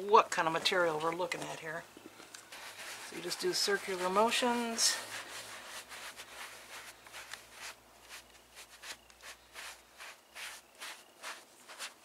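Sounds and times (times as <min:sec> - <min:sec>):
foam pad rubbing upholstery: 0:02.5 - 0:12.0.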